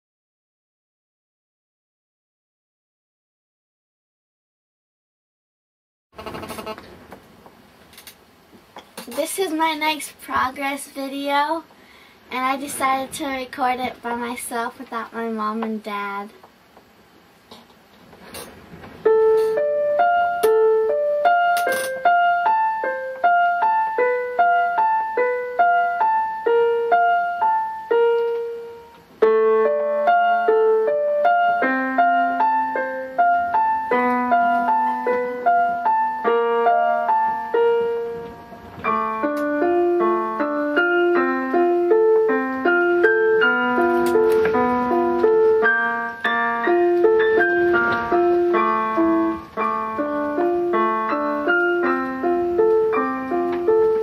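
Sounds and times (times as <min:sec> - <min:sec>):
electronic keyboard piano notes: 0:18.6 - 0:54.0.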